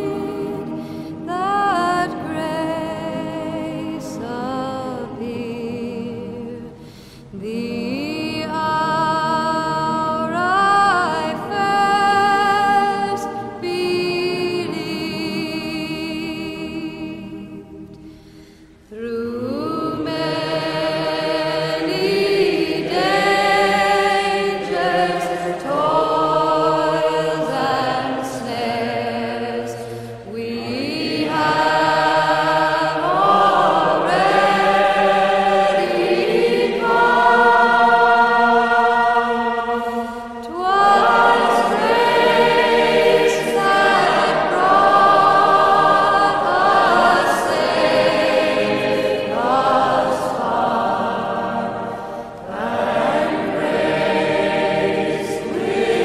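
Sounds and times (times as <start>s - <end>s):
choir singing held chords: 0.0s - 56.0s.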